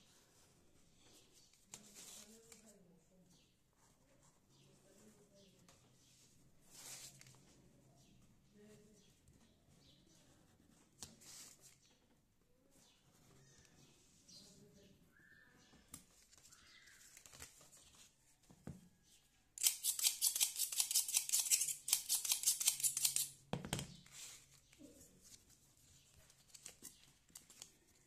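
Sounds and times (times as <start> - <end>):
paper handling: 1.0 - 2.8, 15.8 - 18.2, 24.0 - 28.0
scissors cutting paper: 19.6 - 23.4.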